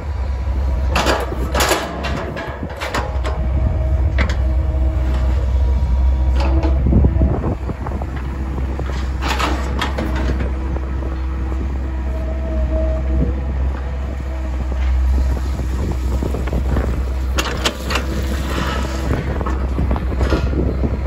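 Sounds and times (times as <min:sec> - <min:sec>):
excavator diesel engine: 0:00.0 - 0:21.0
hydraulics whine: 0:00.0 - 0:21.0.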